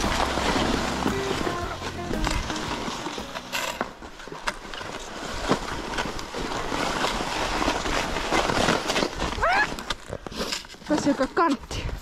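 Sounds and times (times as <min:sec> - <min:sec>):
skis swishing over snow: 0:00.0 - 0:11.6
crunches in snow: 0:04.3 - 0:12.0.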